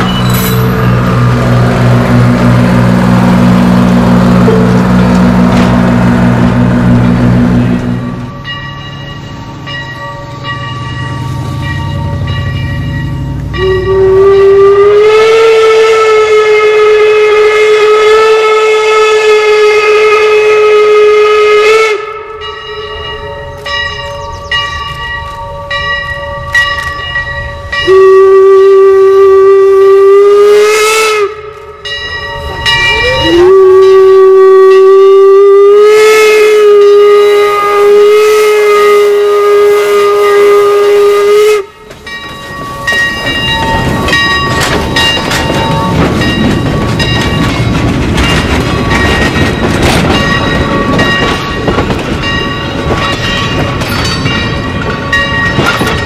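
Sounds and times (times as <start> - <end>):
steam locomotive rumble: 0.0 - 56.0
steam whistle blasts: 13.6 - 22.5, 27.8 - 31.5, 32.8 - 41.8.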